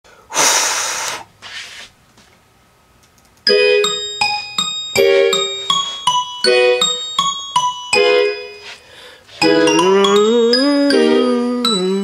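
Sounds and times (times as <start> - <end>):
keyboard instrumental beat: 3.5 - 12.0.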